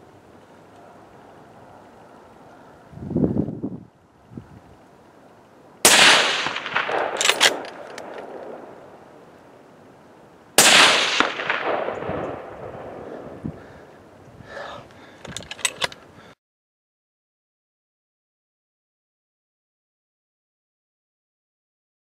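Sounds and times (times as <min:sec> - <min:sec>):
rifle shots with echo: 0:05.8 - 0:09.1, 0:10.6 - 0:13.3
sharp clicks: 0:05.9 - 0:08.6, 0:15.2 - 0:16.1.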